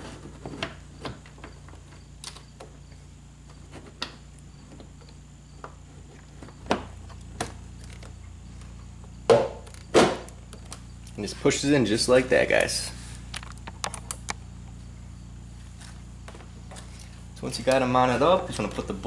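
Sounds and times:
faint steady hum: 0.0 - 19.0
plastic housing knocking on car body: 9.3 - 10.3.

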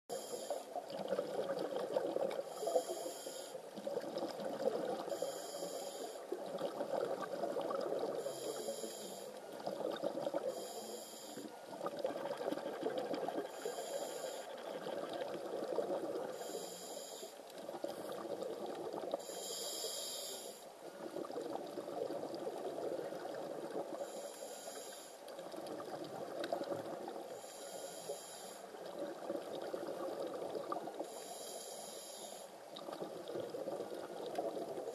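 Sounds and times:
diver breathing hisses: 13.5 - 14.5, 16.4 - 17.4, 19.2 - 20.6, 31.0 - 32.5.

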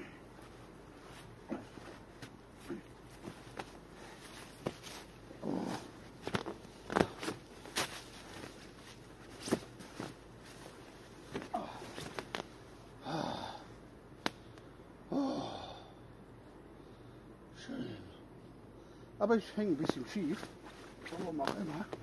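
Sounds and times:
hammock rustling: 0.0 - 13.6, 19.6 - 22.0
hammock clicks: 4.4 - 10.7, 11.3 - 12.6, 20.5 - 22.0
man exhaling breathily: 13.0 - 13.7.

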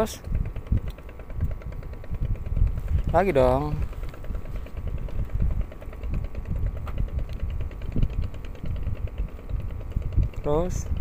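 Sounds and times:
fast mechanical ticking: 0.0 - 11.0
wind buffeting microphone: 0.0 - 11.0.

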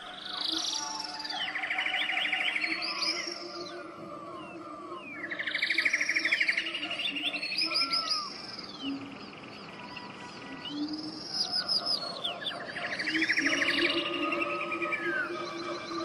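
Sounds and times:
chirps whistles and trills: 0.0 - 16.0.

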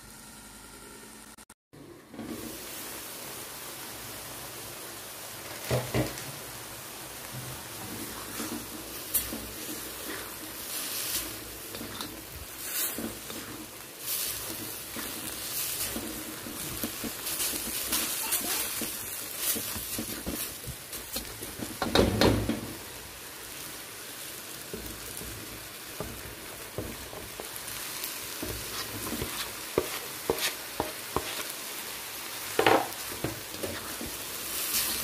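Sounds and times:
vegetables sizzling in a wok: 0.0 - 35.0
spatula scraping and knocking pan: 7.3 - 22.9, 24.7 - 27.6, 28.2 - 31.6, 32.5 - 35.0.

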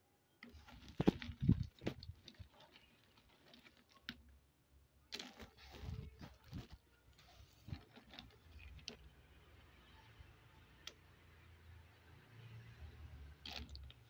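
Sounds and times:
clay chunks clicking together: 0.4 - 4.4, 13.4 - 14.0.

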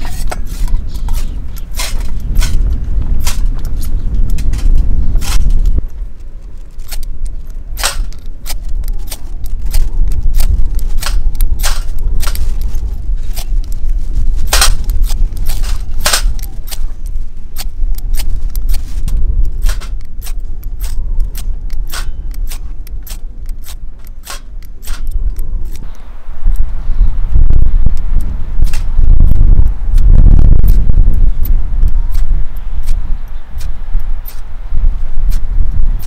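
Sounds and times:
fire steel rod scraping: 0.0 - 5.8
low rumble: 0.0 - 36.0.

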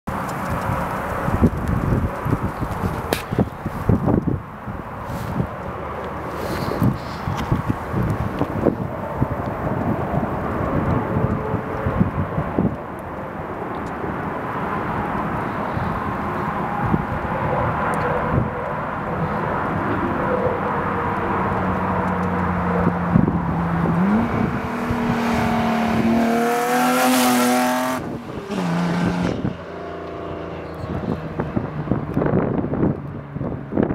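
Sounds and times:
car exhaust fly-by: 15.2 - 33.9.

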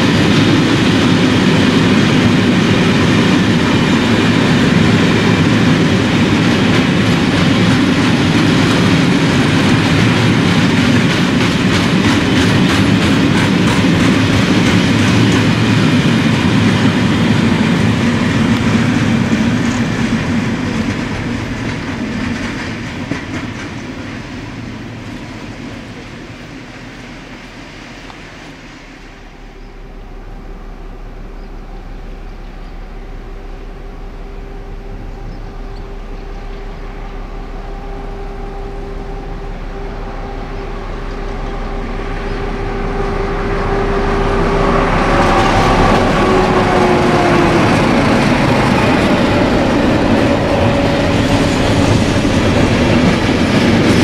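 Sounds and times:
diesel locomotive engine hum: 0.0 - 54.0
train wheel clatter: 0.0 - 54.0.

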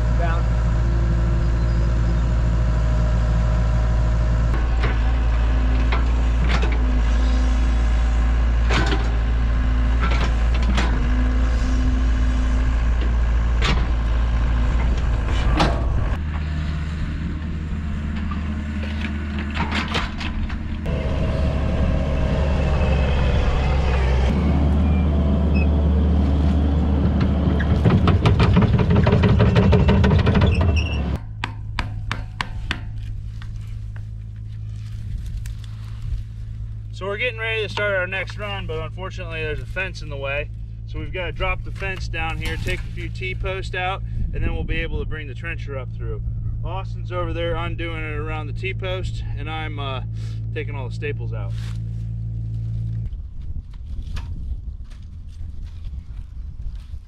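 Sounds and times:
heavy equipment engine running: 0.0 - 31.4, 32.6 - 56.8
metal clanks and knocks: 4.5 - 7.5, 8.6 - 11.4, 12.6 - 16.5, 27.0 - 33.6.

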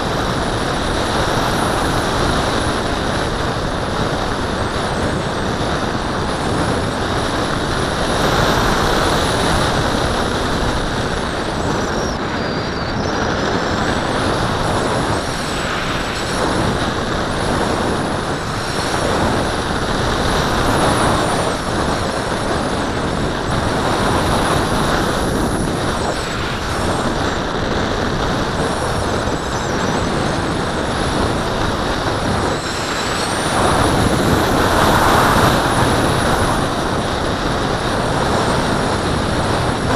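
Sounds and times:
wind rushing past camera: 0.0 - 39.9.

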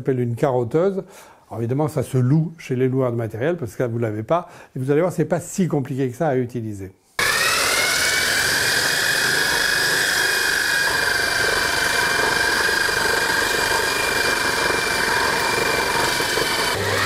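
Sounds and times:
core drill whining: 7.2 - 17.0.

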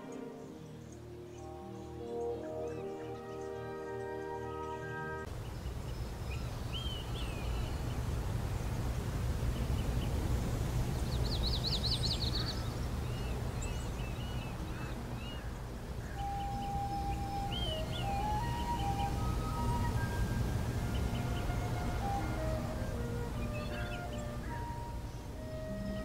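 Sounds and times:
music track: 0.0 - 5.3, 16.1 - 26.0
small birds chirping: 0.0 - 26.0
bird trill: 11.4 - 26.0.

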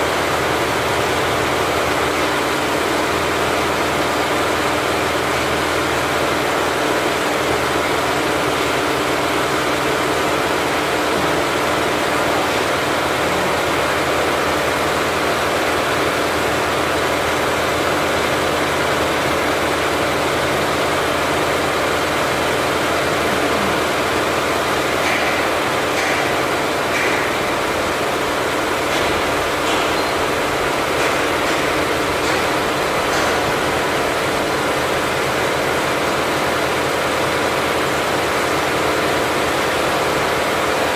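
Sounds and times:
embroidery machine running: 0.0 - 40.9.

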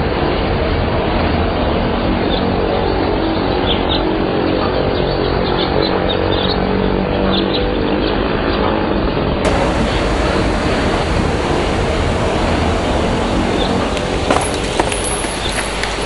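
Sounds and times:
faint steady hum: 9.4 - 16.0
outdoor rushing noise: 9.4 - 16.0
small birds chirping: 9.5 - 16.0.

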